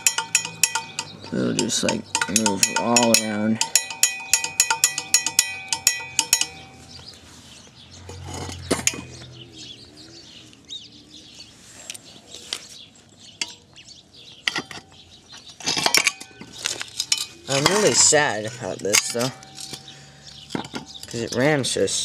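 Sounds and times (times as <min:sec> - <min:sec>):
loose metal parts clinking: 0:00.0 - 0:07.1, 0:08.0 - 0:09.4, 0:14.4 - 0:22.0.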